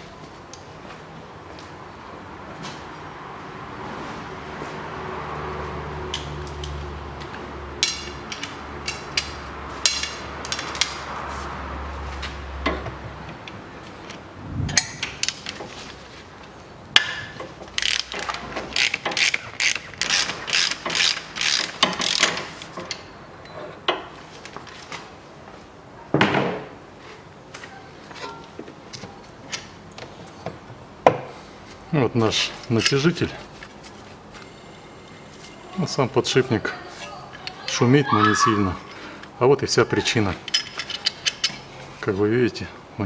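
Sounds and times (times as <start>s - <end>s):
socket ratchet clicking: 17.7s - 22.4s.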